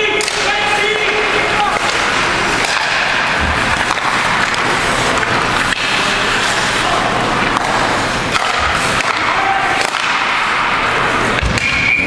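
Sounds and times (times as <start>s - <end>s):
sticks and puck clacking: 0.0s - 12.0s
skates scraping on ice: 0.4s - 11.4s
referee's whistle: 11.6s - 12.0s.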